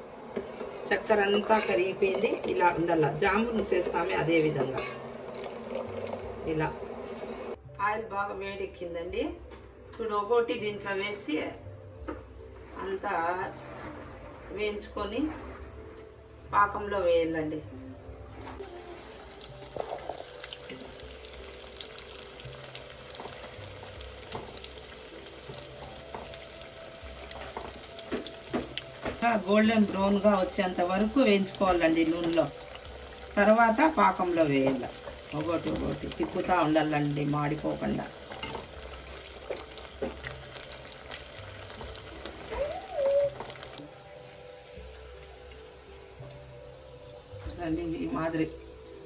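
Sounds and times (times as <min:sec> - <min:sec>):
dough deep-frying in oil: 0:00.7 - 0:07.6, 0:18.4 - 0:49.0.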